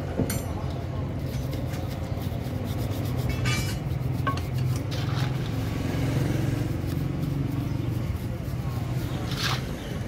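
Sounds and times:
metal parts clinking and scraping: 3.3s - 4.6s
low engine hum: 3.8s - 10.0s.

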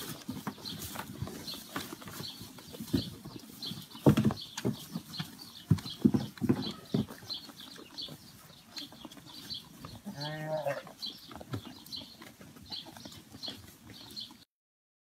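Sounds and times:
animals munching hay: 0.0s - 14.4s
lamb bleating: 10.0s - 11.0s.

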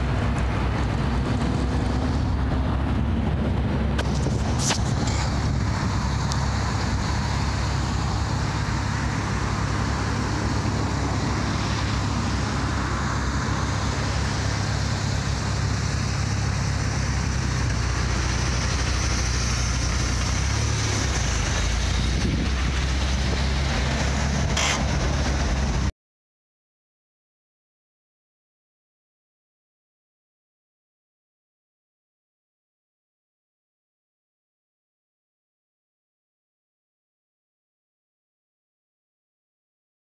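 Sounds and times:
van engine droning: 0.0s - 25.9s.

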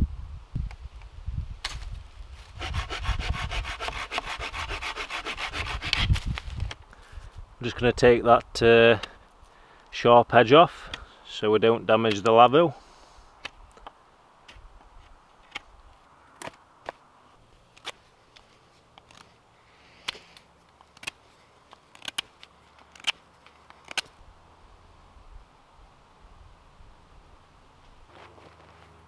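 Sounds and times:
knife shaving wooden stick: 2.6s - 6.1s.

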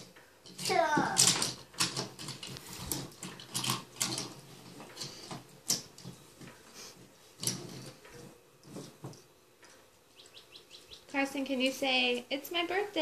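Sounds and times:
toy trains clicking on wood: 0.0s - 4.4s.

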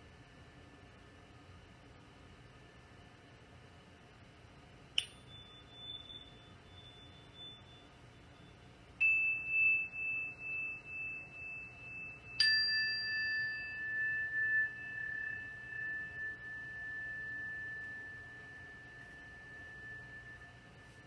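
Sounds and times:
meditation bells ringing: 5.0s - 21.0s.

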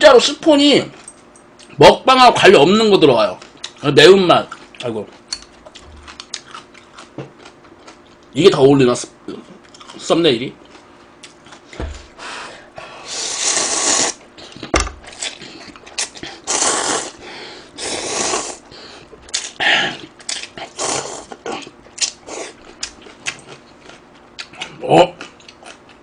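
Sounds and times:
person slurping noodles: 13.1s - 14.2s, 16.4s - 17.2s, 17.8s - 18.6s, 19.9s - 21.4s.

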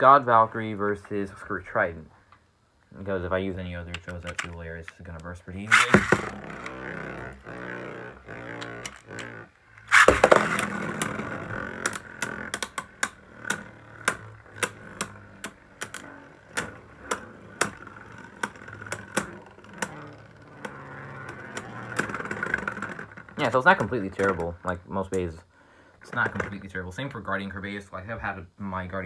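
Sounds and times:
scraping burst: 5.6s - 24.0s
spinning tops whirring: 5.6s - 25.3s.

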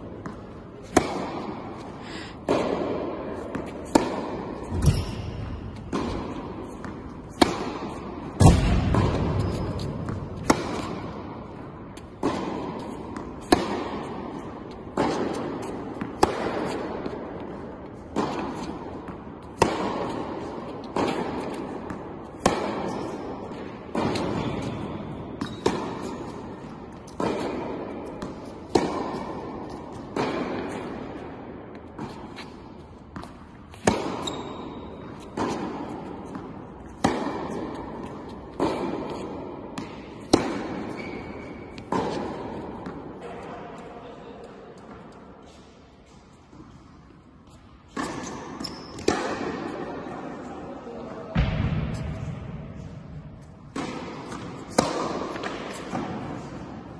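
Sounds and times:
tennis racket hitting ball: 0.0s - 43.5s, 44.8s - 50.1s, 51.3s - 56.9s.

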